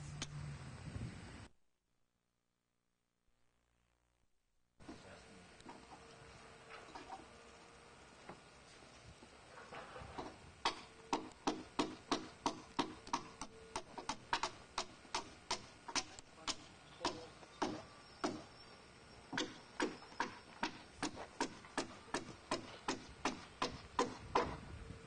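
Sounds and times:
hammer driving nails into timber: 0:10.2 - 0:18.5, 0:19.3 - 0:24.6.

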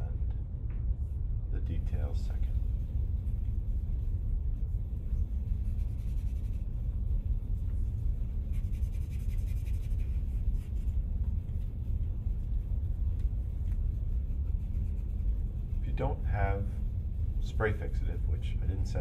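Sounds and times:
low rumble: 0:00.0 - 0:19.0
charcoal scratching on paper: 0:05.3 - 0:06.7, 0:08.4 - 0:11.0, 0:13.6 - 0:15.8.

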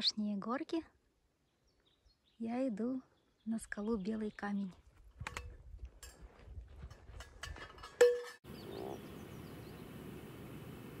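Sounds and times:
frogs croaking: 0:08.5 - 0:11.0.

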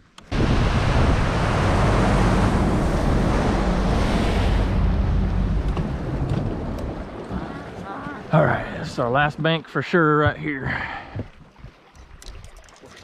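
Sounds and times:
water rushing past hull: 0:00.0 - 0:13.0
outboard motor running: 0:00.2 - 0:09.4
wind buffeting microphone: 0:00.3 - 0:08.3.

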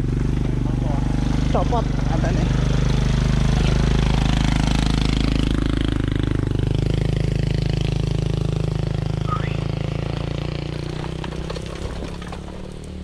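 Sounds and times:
dirt bike engine idling: 0:00.0 - 0:13.0.

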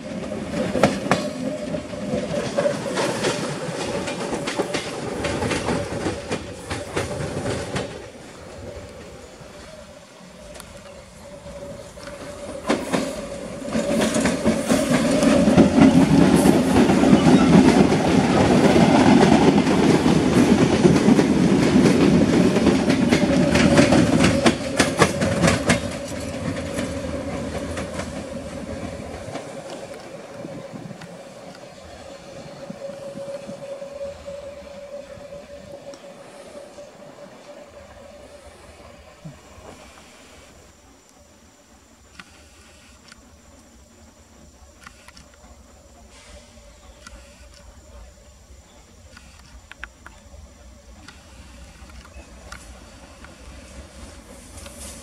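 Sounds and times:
train wheels clattering over rail joints: 0:00.0 - 0:09.8, 0:10.4 - 0:32.0.

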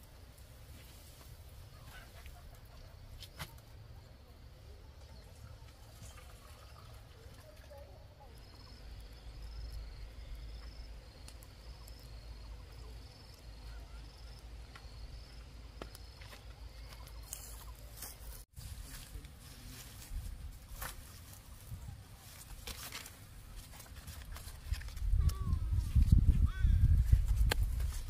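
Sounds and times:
cricket chirping: 0:01.7 - 0:17.6
faint footsteps: 0:14.6 - 0:28.0.

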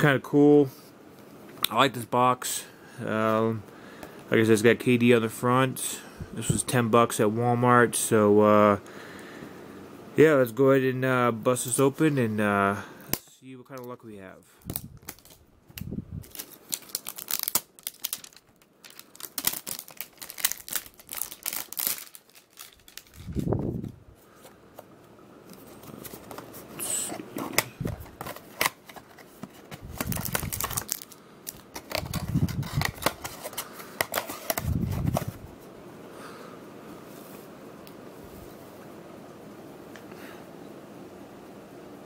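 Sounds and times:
cardboard box crinkling and tearing: 0:16.2 - 0:23.4, 0:27.4 - 0:35.4.

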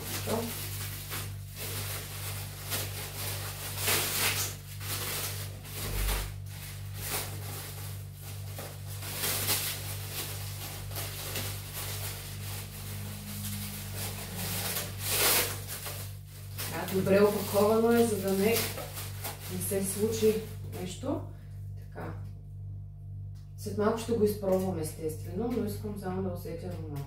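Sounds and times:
packaging rustling: 0:00.0 - 0:20.7
steady low hum: 0:00.0 - 0:27.0.

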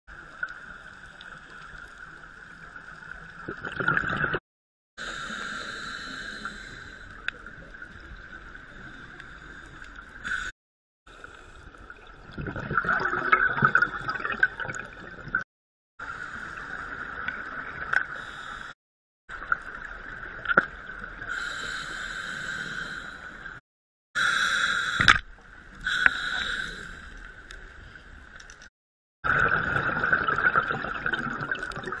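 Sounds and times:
scuba exhaust bubbles gurgling: 0:11.9 - 0:15.4, 0:29.3 - 0:32.0.

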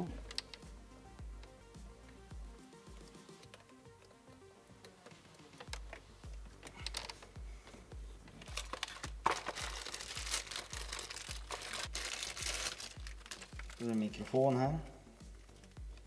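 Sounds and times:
background music with bass beat: 0:00.0 - 0:16.0
plastic packaging crinkling: 0:08.4 - 0:14.3.

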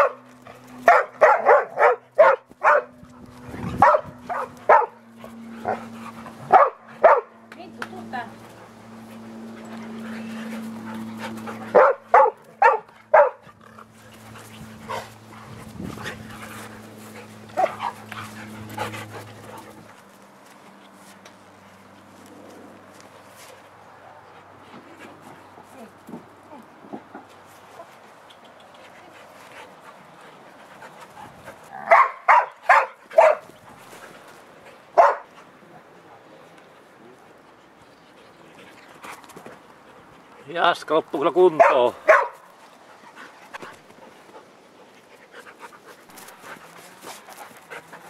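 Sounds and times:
dogs barking: 0:00.0 - 0:03.1, 0:03.8 - 0:07.4, 0:11.4 - 0:13.6, 0:17.5 - 0:18.6, 0:31.8 - 0:33.5, 0:35.0 - 0:35.3, 0:41.5 - 0:42.5.

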